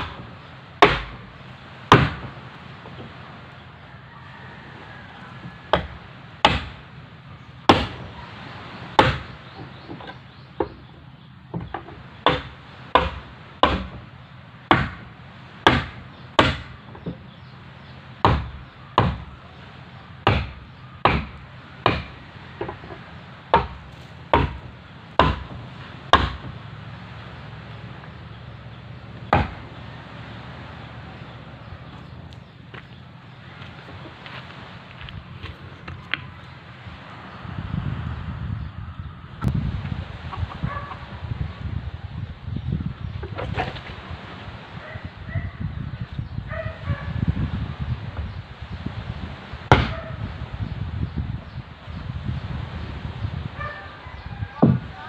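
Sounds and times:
wooden mallet knocking wood: 1.9s - 2.3s, 20.3s - 26.6s, 29.3s - 29.6s, 54.6s - 54.9s.

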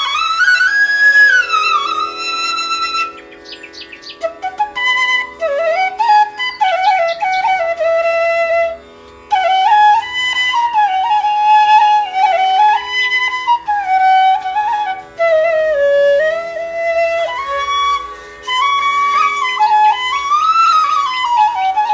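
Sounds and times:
flute playing slow melody: 0.0s - 21.9s.

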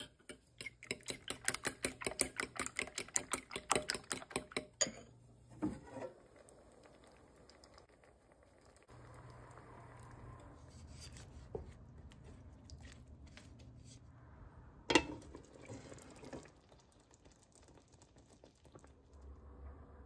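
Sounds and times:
wooden spatula scraping pan: 5.5s - 6.2s, 10.6s - 12.3s
wet bubbling: 15.3s - 20.0s.

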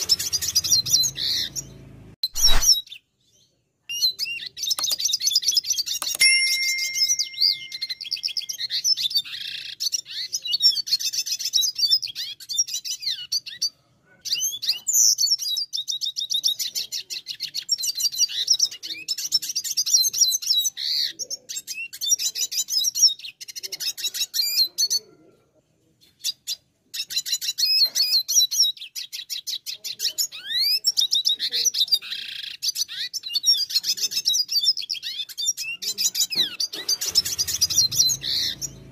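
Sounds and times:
bird singing high trills: 0.0s - 2.9s, 4.9s - 9.8s, 36.8s - 38.9s.

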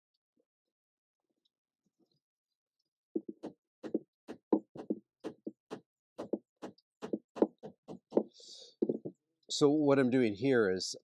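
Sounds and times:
hammer knocking on wood: 3.2s - 9.1s.

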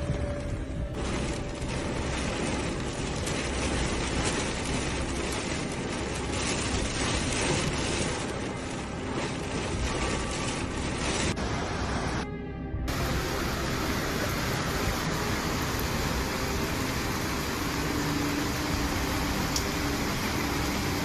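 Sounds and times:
heavy rain: 0.0s - 12.2s, 12.9s - 21.0s
wind rumble on microphone: 0.0s - 12.2s
storm wind: 0.0s - 21.0s.

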